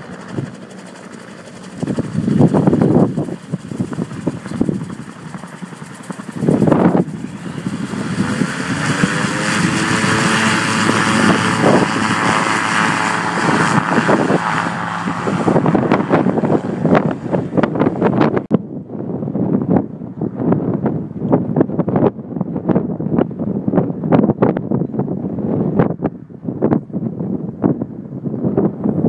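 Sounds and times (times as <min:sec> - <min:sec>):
gyroplane engine and propeller: 0:00.0 - 0:29.0
wind buffeting microphone: 0:00.0 - 0:29.0.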